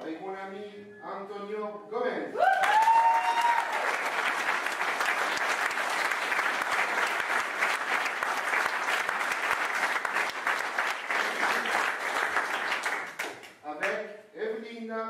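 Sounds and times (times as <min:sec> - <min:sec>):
audience applauding: 0:02.4 - 0:14.0.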